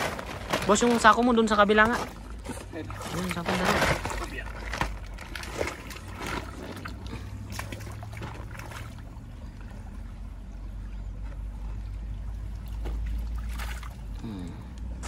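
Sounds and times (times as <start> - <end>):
stream running over stones: 0.0 - 14.2
net splashing in water: 1.9 - 10.0, 12.3 - 14.2.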